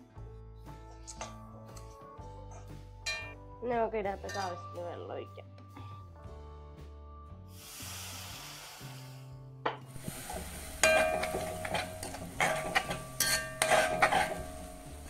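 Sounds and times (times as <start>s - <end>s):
water sizzling in hot pan: 9.9s - 15.0s
metal spatula scraping pan: 10.0s - 15.0s.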